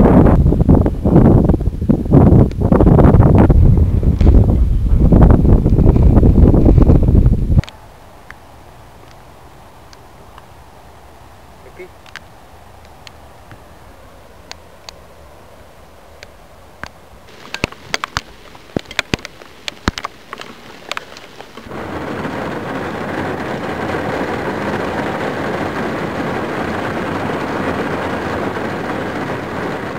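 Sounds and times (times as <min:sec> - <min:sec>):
distant heavy rain hiss: 0:03.4 - 0:29.9
raindrops ticking: 0:16.2 - 0:28.3
heavy rain downpour: 0:17.3 - 0:29.9.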